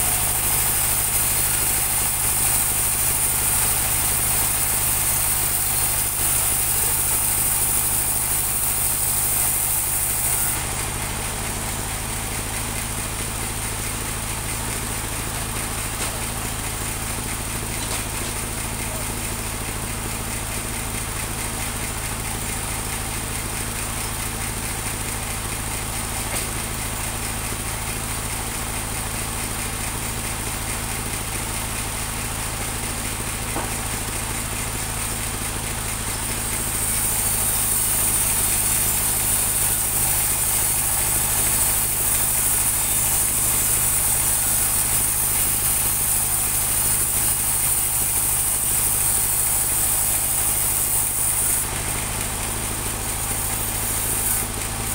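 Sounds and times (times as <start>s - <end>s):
saw blade cutting wood hiss: 0.0s - 10.6s, 36.6s - 51.7s, 53.1s - 54.9s
sawmill engine drone: 0.0s - 54.9s.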